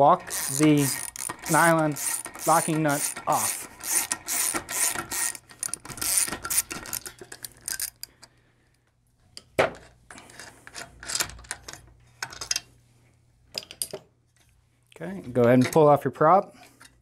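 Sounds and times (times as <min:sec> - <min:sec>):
socket wrench ratcheting: 0:00.2 - 0:08.2.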